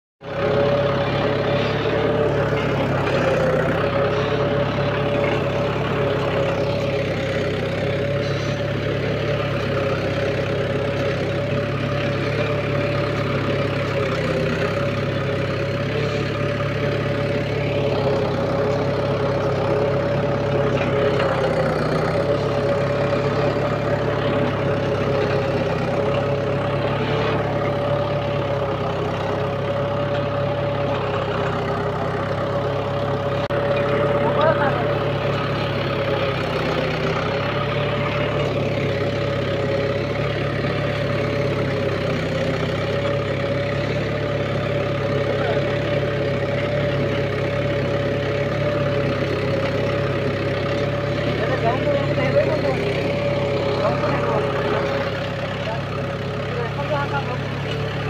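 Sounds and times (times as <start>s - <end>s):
tractor diesel engine running: 0.2s - 58.0s
steady whine: 0.3s - 41.7s.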